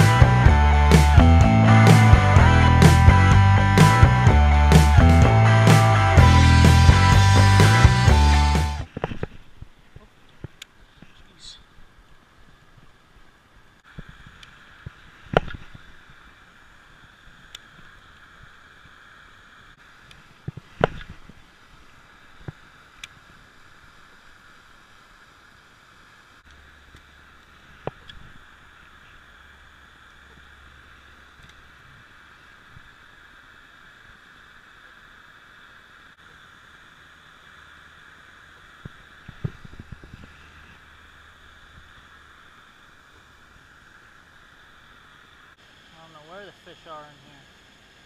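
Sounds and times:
fountain water splashing: 0:14.6 - 0:48.0.

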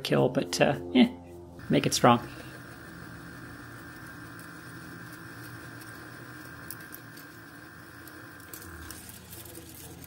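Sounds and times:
milling machine motor whine: 0:01.6 - 0:10.0.

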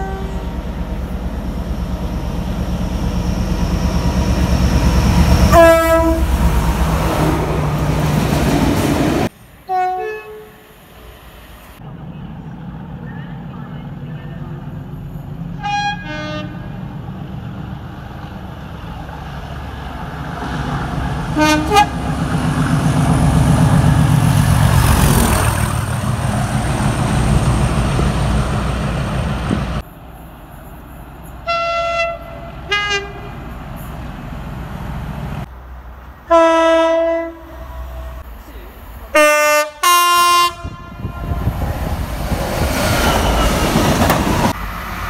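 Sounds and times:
train horn blasts: 0:00.0 - 0:00.5, 0:05.5 - 0:06.4, 0:09.7 - 0:10.6, 0:15.6 - 0:16.8, 0:21.4 - 0:22.0, 0:31.4 - 0:33.4, 0:36.3 - 0:38.2, 0:39.1 - 0:41.6
locomotive rumbling past: 0:00.0 - 0:45.0.

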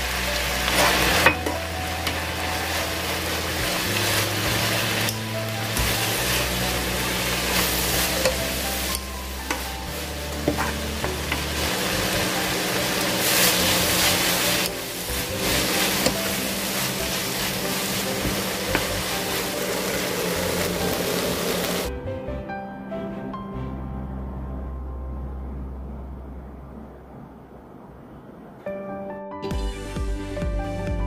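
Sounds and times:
food sizzling in frying pan: 0:00.0 - 0:21.9.

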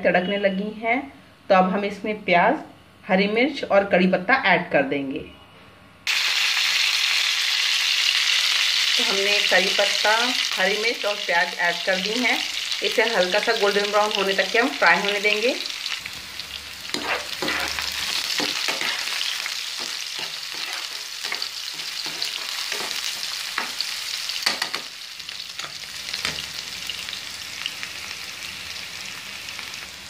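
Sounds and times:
food sizzling in hot oil: 0:06.1 - 0:30.0
spatula stirring and knocking pan: 0:16.9 - 0:23.8.

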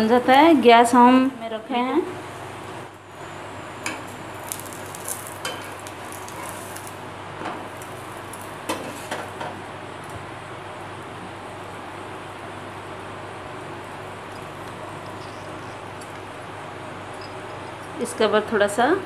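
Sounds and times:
flatbread sizzling in oil: 0:02.3 - 0:09.7.

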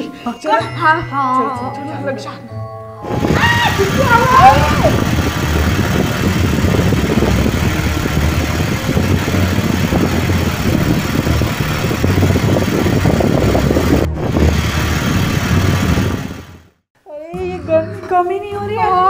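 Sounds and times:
electric fan running: 0:03.0 - 0:16.7.

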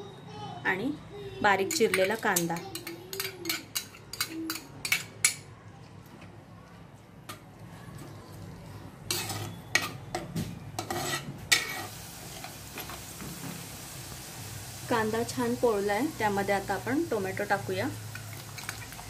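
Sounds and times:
spoon clinking and scraping pot: 0:01.6 - 0:05.5, 0:09.1 - 0:13.0
onion frying in oil: 0:08.6 - 0:19.0.

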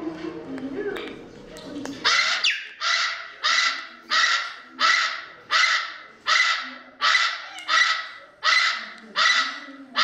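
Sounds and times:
parrot screeching: 0:02.0 - 0:10.0.

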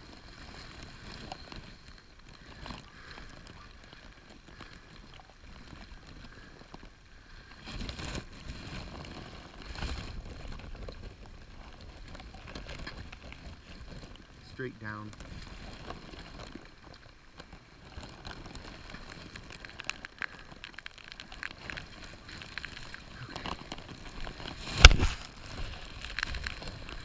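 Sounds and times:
wind rumbling on microphone: 0:00.0 - 0:27.0
plastic bag crinkling: 0:14.9 - 0:27.0
camera bumps: 0:24.7 - 0:25.2.

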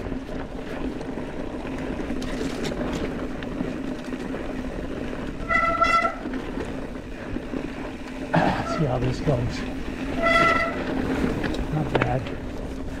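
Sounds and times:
bike tyres rumbling on dirt trail: 0:00.0 - 0:13.0
short high squeal: 0:10.1 - 0:10.8.

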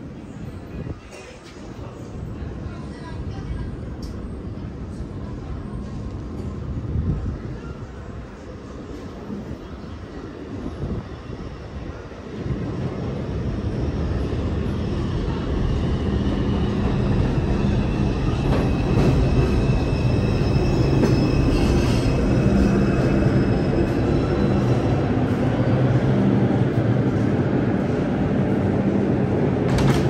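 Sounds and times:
train rumbling on rails: 0:00.0 - 0:30.0
steel wheels squealing on rail: 0:16.6 - 0:25.2.

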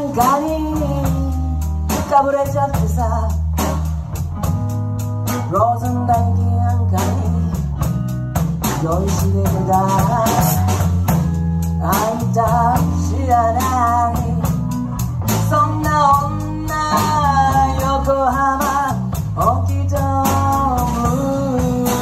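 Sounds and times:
live blues band playing: 0:00.0 - 0:22.0.

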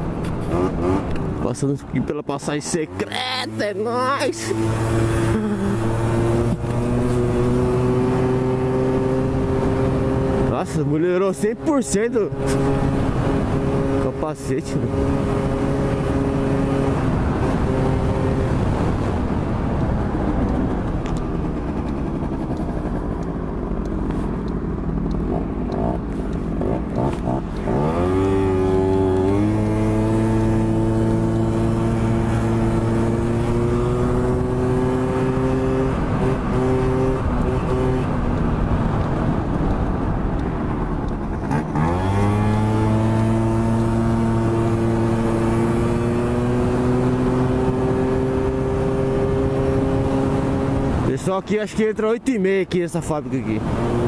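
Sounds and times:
wind noise: 0:14.7 - 0:51.2.

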